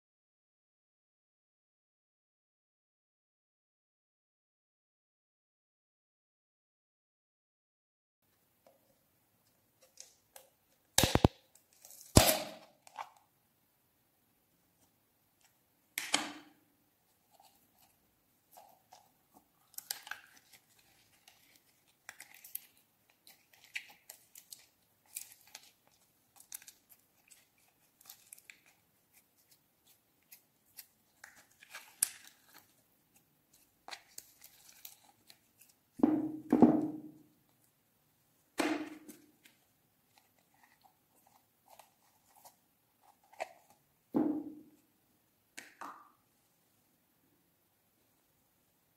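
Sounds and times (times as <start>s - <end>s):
plastic lid snapping: 11.0s - 11.4s, 16.0s - 16.5s.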